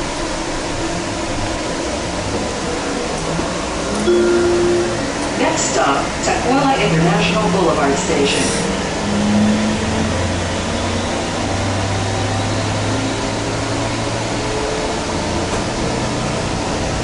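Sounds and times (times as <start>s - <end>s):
train car ventilation hum: 0.0s - 9.0s.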